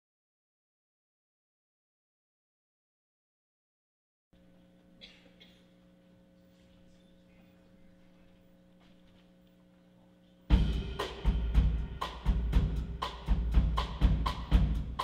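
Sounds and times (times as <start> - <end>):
faint equipment hum: 4.4 - 15.0
drum hits: 10.5 - 15.0
live band playing: 10.5 - 15.0.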